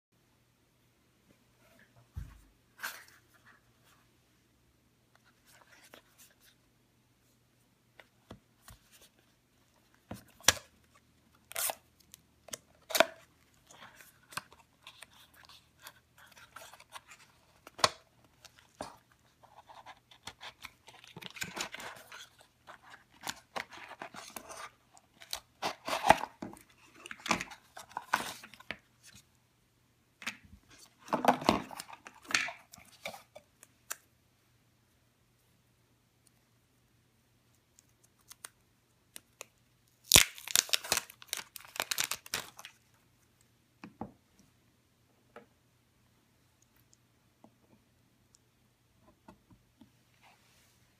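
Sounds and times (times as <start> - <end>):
rustling and tearing card: 11.4 - 12.2, 12.8 - 29.2, 39.4 - 42.8.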